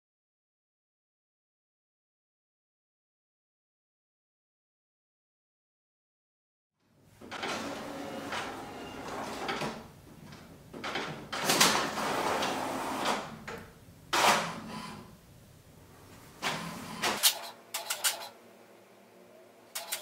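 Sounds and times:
inkjet printer printing: 7.3 - 9.9, 11.4 - 13.4, 16.4 - 18.4, 19.7 - 20.0.

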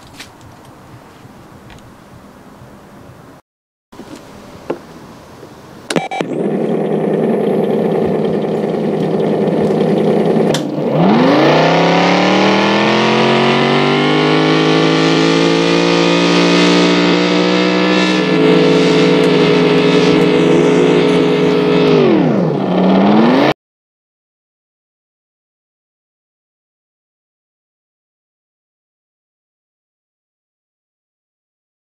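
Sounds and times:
engine sound from a speaker: 4.0 - 23.6.

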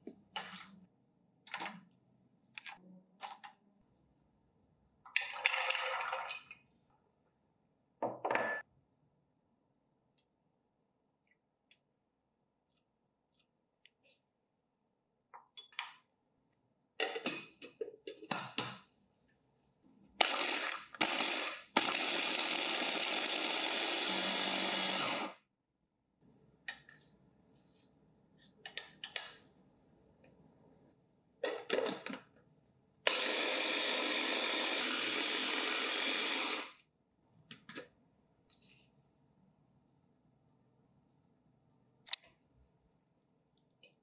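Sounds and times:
electric food chopper grinding: 20.2 - 25.4, 33.1 - 36.7.

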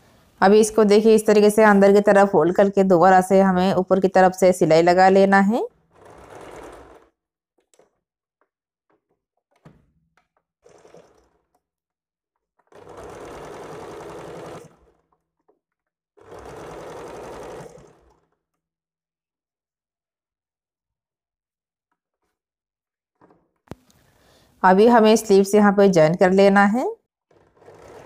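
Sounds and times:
sewing machine stitching: 0.9 - 8.0, 8.9 - 11.8, 12.4 - 18.6, 23.2 - 28.0.

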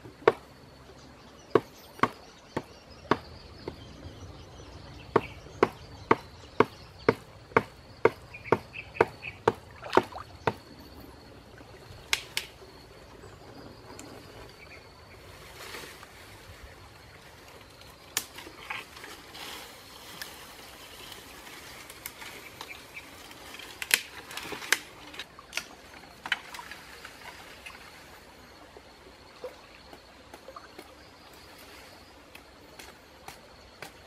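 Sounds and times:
branches snapping and cracking: 12.1 - 12.5, 18.1 - 19.2, 21.1 - 27.2
leaves rustling: 13.6 - 28.5.

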